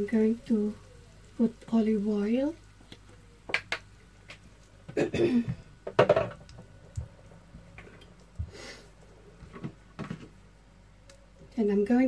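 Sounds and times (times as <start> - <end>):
person coughing: 4.9 - 5.6.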